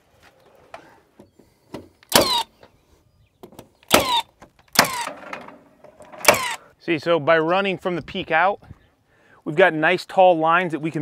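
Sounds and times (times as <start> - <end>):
nailer firing with motor whir: 2.1 - 2.5, 3.9 - 5.6, 6.2 - 6.6.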